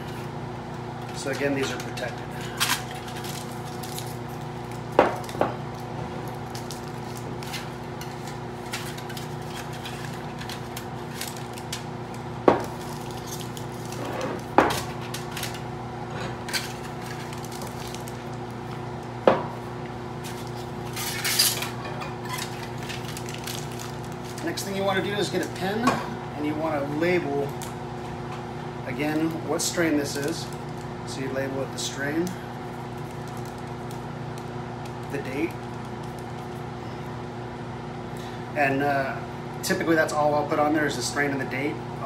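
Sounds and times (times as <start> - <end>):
fan hum: 0.0 - 42.0
aluminium foil crinkling: 1.2 - 15.6, 16.5 - 18.6, 20.2 - 25.7, 32.2 - 36.7.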